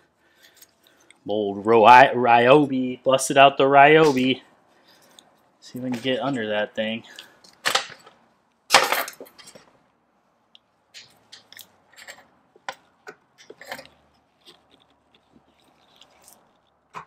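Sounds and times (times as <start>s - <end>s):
metal pick clicking and scraping: 11.0s - 17.0s.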